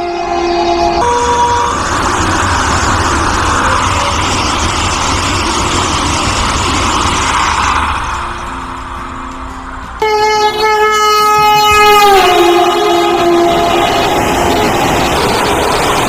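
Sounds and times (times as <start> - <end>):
train horn: 0.0 - 1.8, 10.0 - 16.0
train passing at speed: 0.0 - 16.0.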